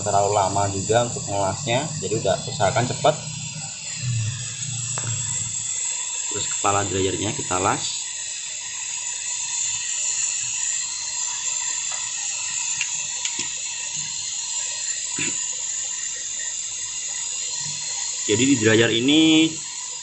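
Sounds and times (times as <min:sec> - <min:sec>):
torch flame hissing: 0:00.0 - 0:20.0.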